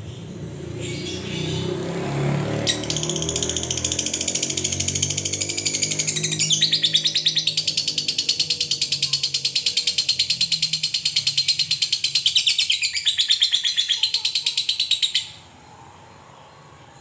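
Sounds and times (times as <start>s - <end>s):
lovebird chattering trill: 2.6s - 15.4s.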